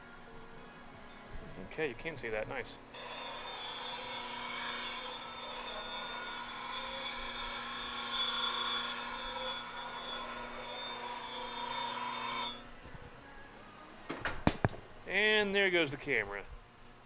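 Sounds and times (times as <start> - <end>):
bench grinder grinding steel: 3.0 - 12.7.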